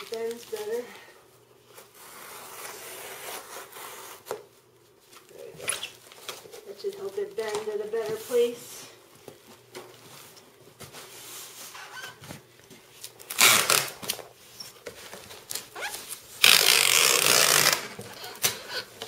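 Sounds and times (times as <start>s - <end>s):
packing tape ripping: 13.0s - 14.3s, 15.3s - 18.7s.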